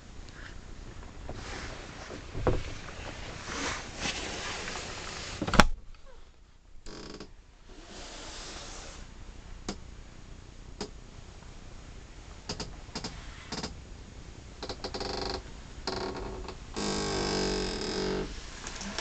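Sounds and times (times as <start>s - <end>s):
loud creak: 6.8s - 7.3s, 12.5s - 13.8s, 14.6s - 18.3s.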